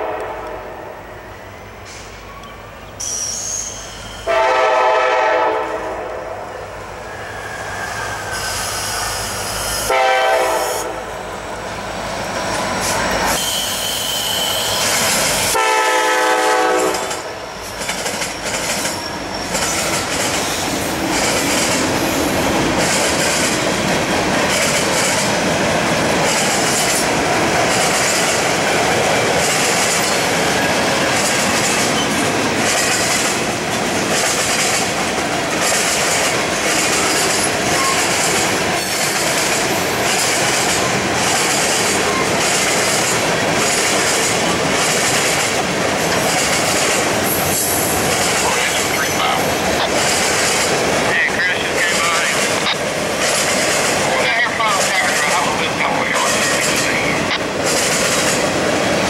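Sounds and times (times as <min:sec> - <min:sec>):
locomotive air horn blasts: 0:00.0 - 0:01.0, 0:04.2 - 0:06.4, 0:09.8 - 0:11.2, 0:15.5 - 0:17.4
train wheels clacking on rail joints: 0:16.6 - 0:59.0.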